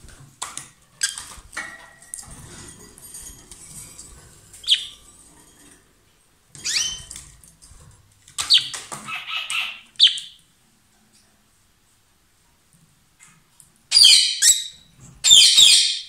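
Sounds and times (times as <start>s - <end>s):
lovebird shrill calls: 4.6s - 4.9s, 6.6s - 7.1s.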